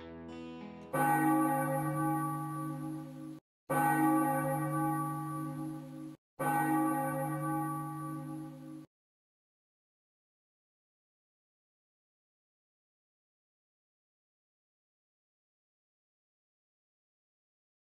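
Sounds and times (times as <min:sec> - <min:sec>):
church bell ringing: 0:01.0 - 0:08.9.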